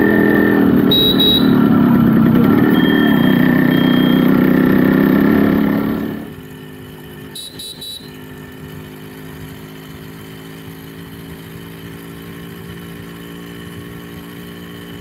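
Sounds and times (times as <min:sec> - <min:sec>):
two-stroke motorcycle engine running: 0:00.0 - 0:15.0
brief high-pitched sound: 0:02.3 - 0:04.4.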